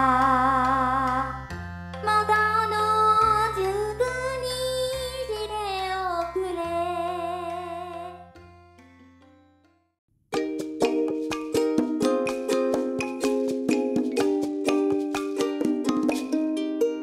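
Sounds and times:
plucked-string tune: 0:07.2 - 0:17.0
wavering melody over held notes: 0:10.4 - 0:17.0.

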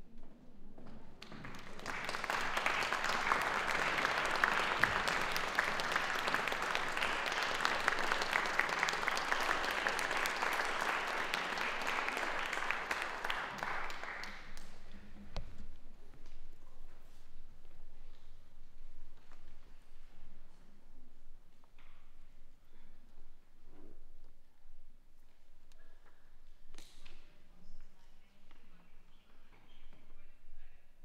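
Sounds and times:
audience applauding: 0:01.2 - 0:15.0.

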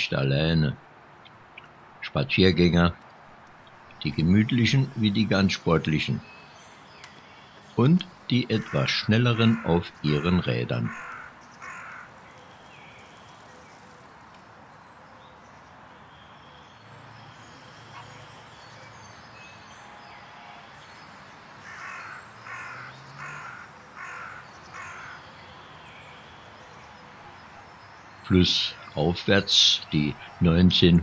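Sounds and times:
faint outdoor background noise: 0:00.0 - 0:31.0
crow cawing: 0:08.5 - 0:12.2, 0:21.6 - 0:25.6.

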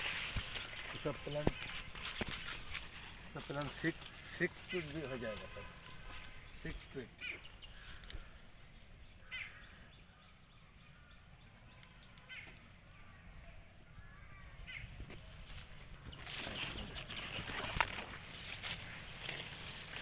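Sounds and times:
rustling and crackling near microphone: 0:00.0 - 0:08.6, 0:15.1 - 0:20.0
bird calling: 0:00.0 - 0:20.0.

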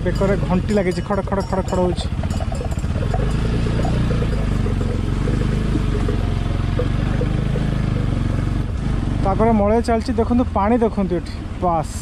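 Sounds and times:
animal bells clattering: 0:00.0 - 0:08.6
motorcycle engine running: 0:00.0 - 0:11.1.

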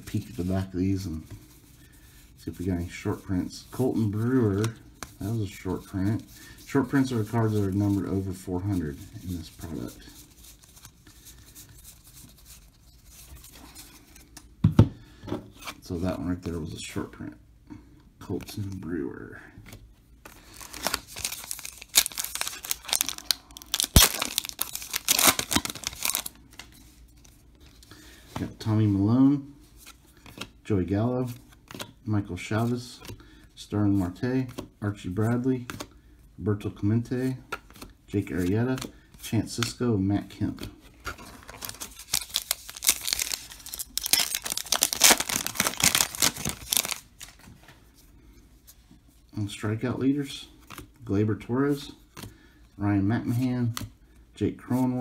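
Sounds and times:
foil wrapper tearing and crinkling: 0:20.4 - 0:26.3, 0:41.5 - 0:47.3
wrapper snapping: 0:20.6 - 0:26.3, 0:41.6 - 0:47.1.

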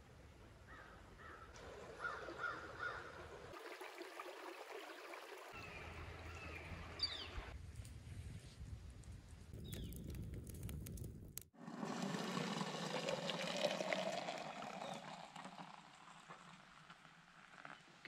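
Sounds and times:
faint forest ambience: 0:00.0 - 0:08.7.

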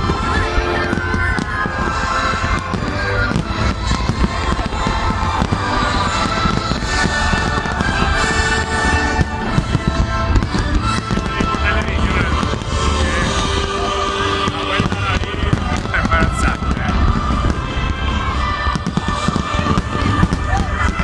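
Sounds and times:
fireworks bursts and crackles: 0:00.0 - 0:21.0
music playing: 0:00.0 - 0:21.0.

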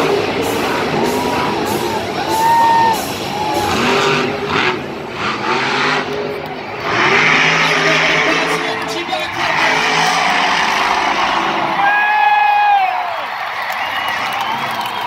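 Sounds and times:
truck engine revving: 0:00.0 - 0:12.3.

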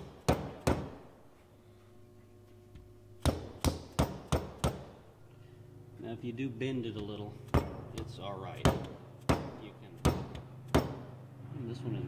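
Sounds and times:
mallet tapping sheet metal: 0:07.0 - 0:11.2.

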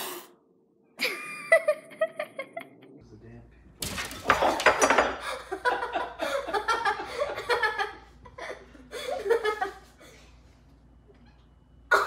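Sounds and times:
person laughing: 0:01.0 - 0:02.8.

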